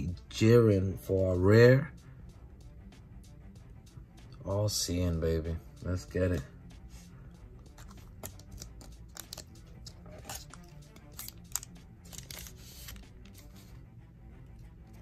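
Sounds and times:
foil pack crinkling and tearing: 11.1s - 13.0s.

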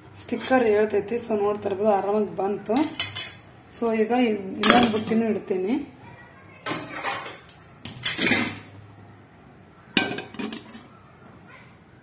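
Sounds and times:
metal bowl clanking on stove: 2.8s - 3.4s, 4.6s - 5.2s, 6.7s - 8.7s, 10.0s - 10.9s.

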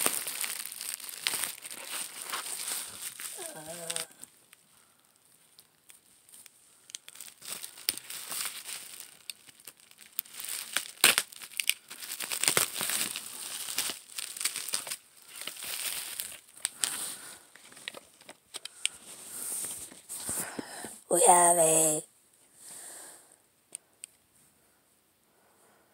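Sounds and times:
packaging crumpling and tearing: 0.0s - 20.5s.

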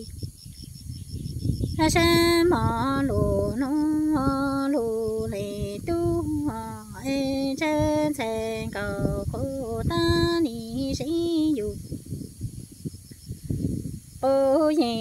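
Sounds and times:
woman singing unaccompanied: 1.8s - 12.0s, 14.2s - 15.0s.

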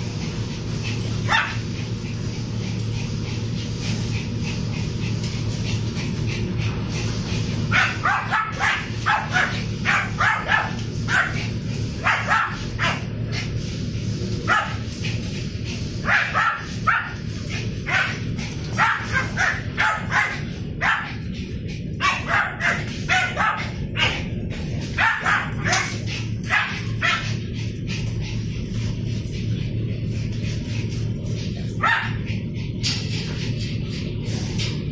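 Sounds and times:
low hum: 0.0s - 34.9s
dogs barking: 1.0s - 2.3s, 7.5s - 13.3s, 14.4s - 15.1s, 16.0s - 27.9s, 31.6s - 32.6s.

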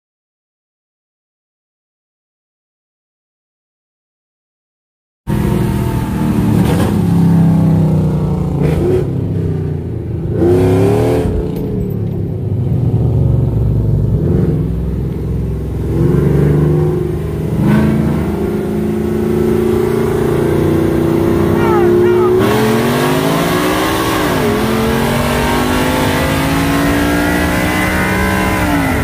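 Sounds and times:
pickup engines revving: 5.3s - 11.7s, 12.5s - 29.0s.

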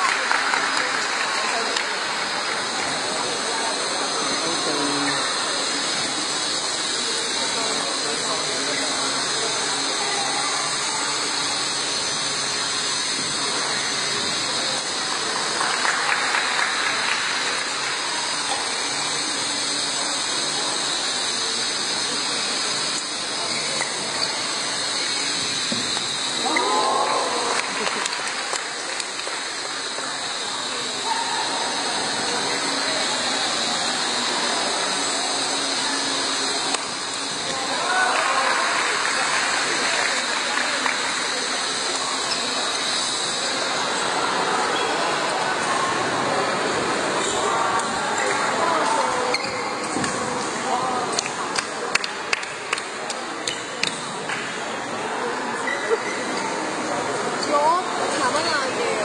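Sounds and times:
spectators murmuring: 0.0s - 59.0s
sports hall background hiss: 0.0s - 59.0s.

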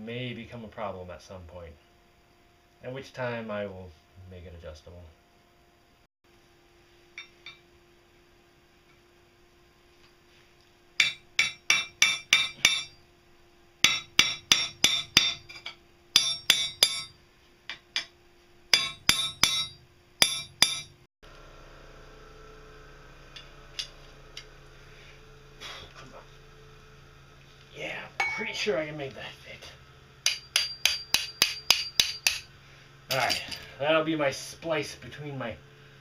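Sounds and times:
hammer striking steel: 11.0s - 13.0s, 13.8s - 18.1s, 18.7s - 21.0s, 28.2s - 28.7s, 30.2s - 32.5s.

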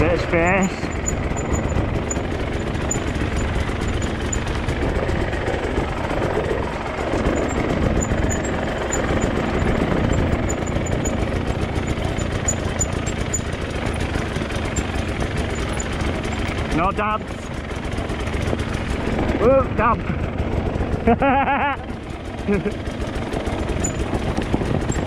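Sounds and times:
motorcycle engine revving: 0.0s - 25.0s.

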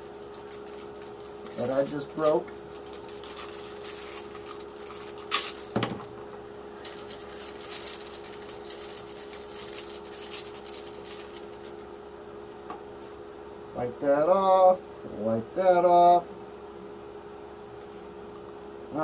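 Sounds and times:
sharp plastic crackle: 0.0s - 6.2s, 6.8s - 11.9s
plastic packaging crinkling: 0.0s - 11.9s
steady hum: 0.0s - 19.0s.

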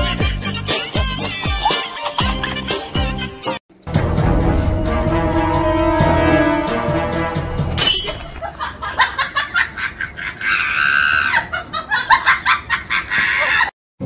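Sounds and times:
people laughing: 1.6s - 2.8s, 8.4s - 13.7s.

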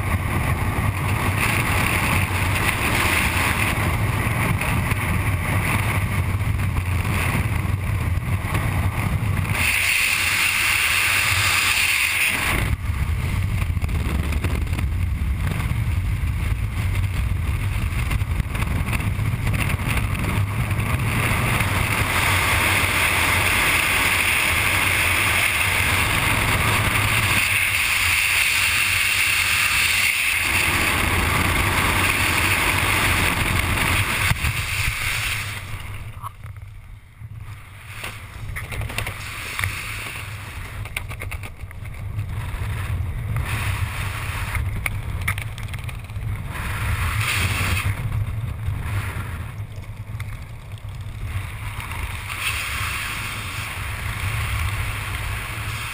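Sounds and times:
wind rushing over camera: 0.0s - 55.9s.

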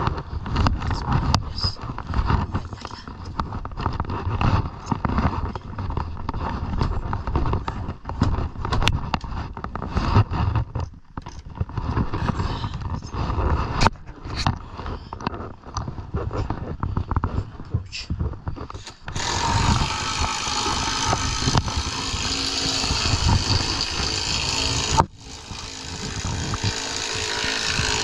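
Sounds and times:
hammer scraping and tapping on wood: 18.6s - 28.0s.

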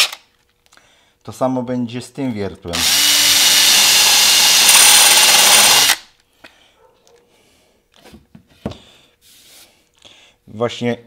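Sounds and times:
electric drill boring into wood: 2.7s - 6.1s.

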